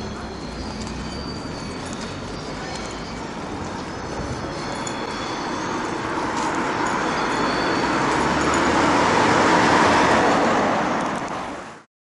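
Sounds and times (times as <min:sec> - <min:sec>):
car driving past: 0:06.0 - 0:11.6.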